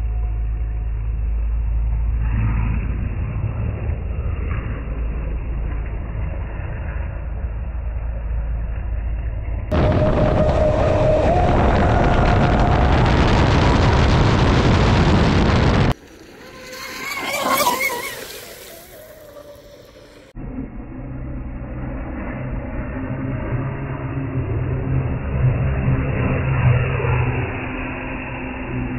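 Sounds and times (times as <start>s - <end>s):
low rumble: 0.0s - 17.7s, 18.6s - 28.9s
water spray rushing: 16.4s - 20.0s.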